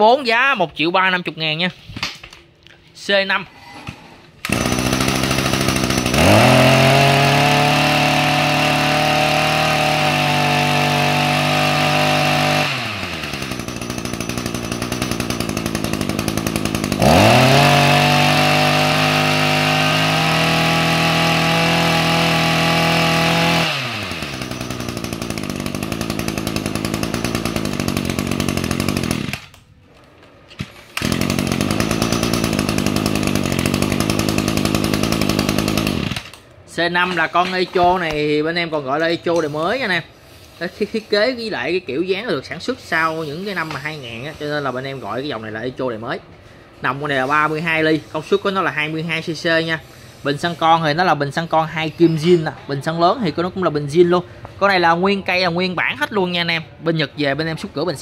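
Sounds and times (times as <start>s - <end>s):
brush cutter engine revving: 4.4s - 29.6s, 30.6s - 45.8s, 46.8s - 52.5s.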